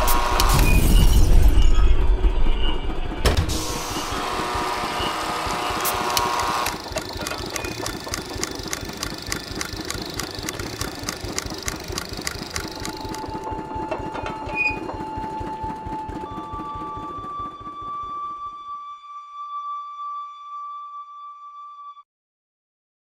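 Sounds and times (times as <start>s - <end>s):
fast regular mechanical clicking: 5.3s - 13.4s.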